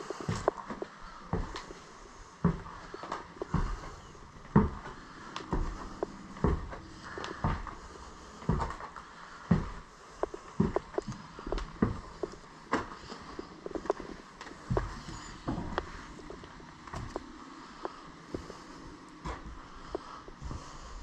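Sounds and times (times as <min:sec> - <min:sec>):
heavy footsteps on stairs: 0:00.0 - 0:21.0.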